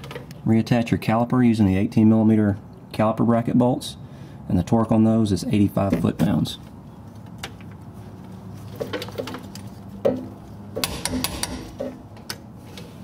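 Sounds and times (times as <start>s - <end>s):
torque wrench clicking on bolts: 10.8s - 11.9s.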